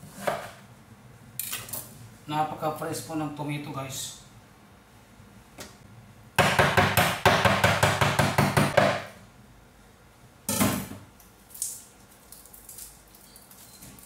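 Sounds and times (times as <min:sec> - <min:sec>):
knife chopping on wooden board: 0:06.4 - 0:09.1.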